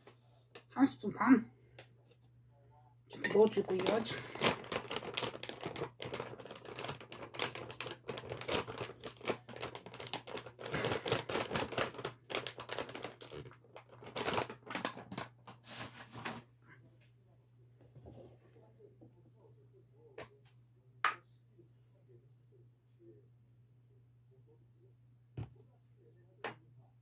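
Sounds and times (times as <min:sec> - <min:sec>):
plastic bag crinkling: 0:03.1 - 0:15.8.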